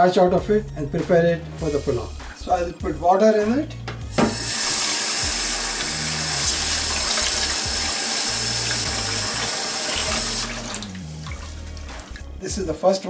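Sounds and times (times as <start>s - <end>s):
tap water running into metal pot: 4.0s - 12.3s.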